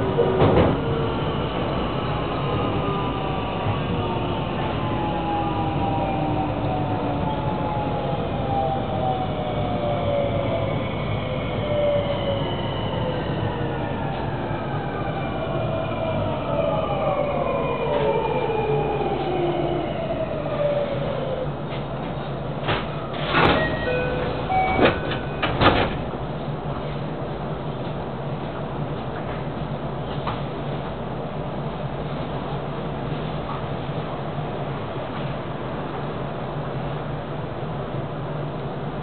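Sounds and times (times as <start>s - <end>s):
train running rumble: 0.0s - 6.8s.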